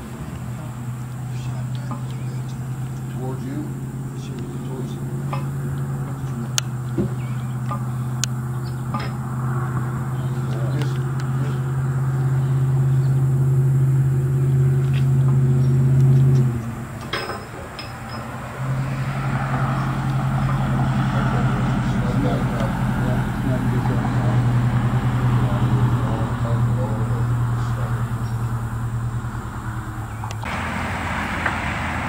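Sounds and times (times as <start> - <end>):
vehicle engine humming: 0.0 - 32.0
sharp clicks and knocks: 14.8 - 18.5.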